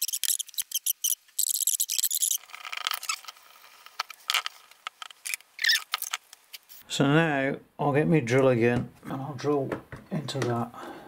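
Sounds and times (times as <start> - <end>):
scratchy rasp with clicks: 0.0 - 6.2.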